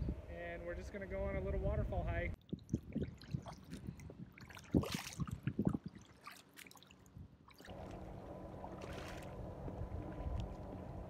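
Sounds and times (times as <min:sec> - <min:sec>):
paddle splashing in water: 0:02.4 - 0:11.0.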